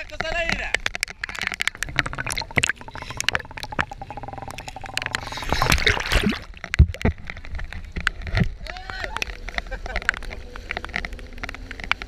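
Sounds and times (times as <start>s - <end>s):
rain ticking on camera: 0.0s - 5.5s, 6.6s - 12.0s
water sloshing and gurgling: 0.8s - 8.6s
rush of water: 1.0s - 12.0s.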